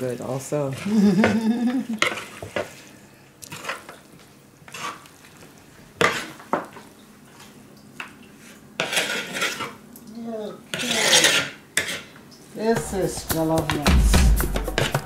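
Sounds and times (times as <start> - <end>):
spoon scraping wooden bowl: 8.4 - 9.8, 10.7 - 12.1.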